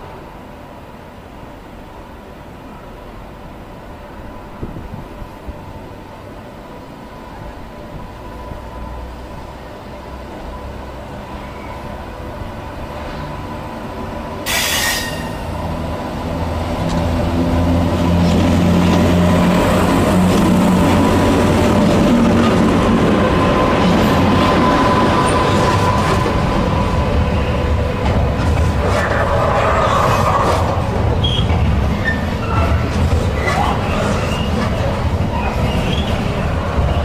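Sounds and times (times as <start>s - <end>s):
electric locomotive motors humming: 0.0s - 37.0s
sharp hiss: 14.5s - 15.5s.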